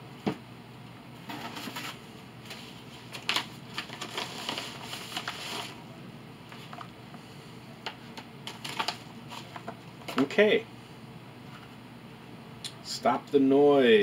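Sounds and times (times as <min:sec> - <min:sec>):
paper mailer rustling: 0:01.3 - 0:05.9, 0:06.5 - 0:07.0, 0:07.8 - 0:10.4.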